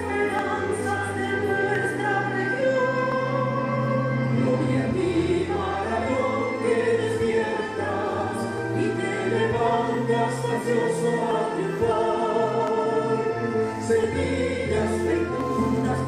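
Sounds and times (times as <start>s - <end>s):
choir singing a hymn: 0.0s - 16.0s
musical accompaniment: 0.0s - 16.0s.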